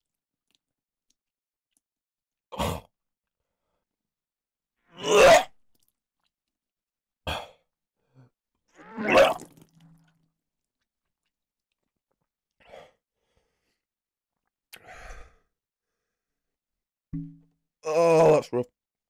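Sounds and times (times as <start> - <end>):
man gagging and retching: 5.0 - 5.5, 8.8 - 10.1.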